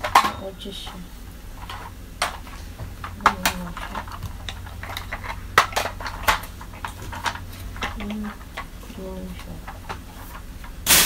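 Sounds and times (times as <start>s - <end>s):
plastic attachments clicking and clattering: 1.6s - 8.7s.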